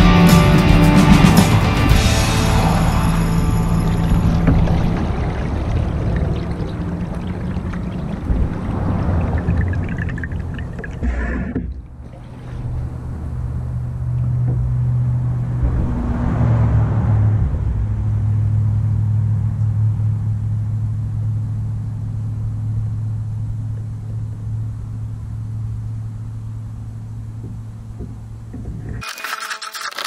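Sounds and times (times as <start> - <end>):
rushing noise: 1.0 - 11.2, 14.7 - 18.5
small boat motor droning: 1.8 - 30.0.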